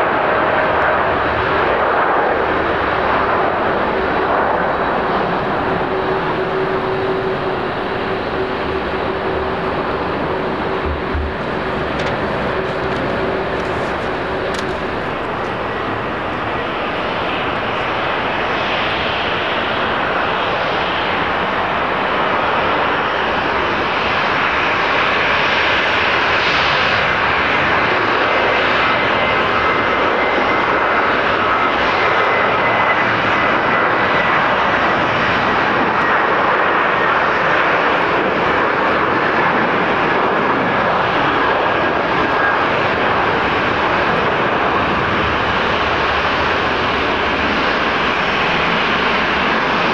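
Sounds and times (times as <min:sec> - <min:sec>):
jet engines roaring: 0:00.0 - 0:49.9
high fan whine: 0:03.8 - 0:18.5.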